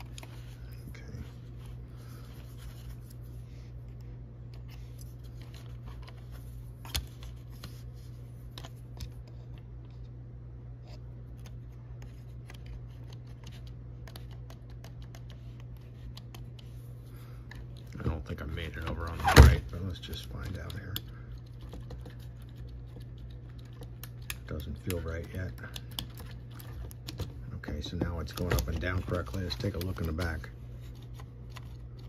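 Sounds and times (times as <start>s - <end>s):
steady low hum: 0.0s - 32.0s.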